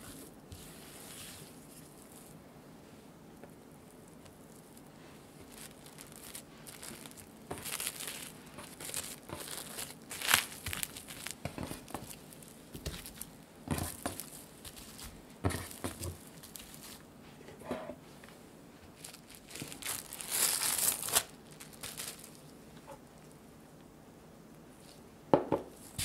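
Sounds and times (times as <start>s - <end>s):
cling film crinkling: 4.2s - 17.1s, 18.9s - 22.5s.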